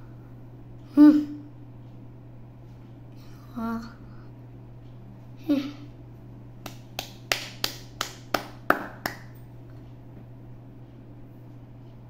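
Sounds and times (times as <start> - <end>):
finger snaps: 6.6 - 9.4.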